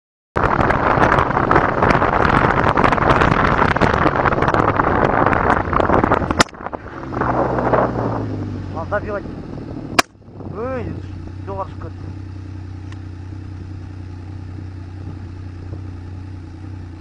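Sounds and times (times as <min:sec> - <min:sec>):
wind buffeting microphone: 0:00.4 - 0:12.3, 0:14.5 - 0:16.2
engine hum: 0:00.4 - 0:17.0
sharp click: 0:06.3 - 0:06.6, 0:10.0 - 0:10.2.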